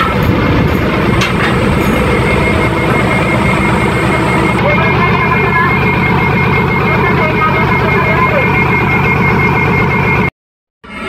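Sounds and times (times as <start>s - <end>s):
thin high whine: 0.0s - 8.5s
heavy diesel engine running: 0.0s - 11.0s.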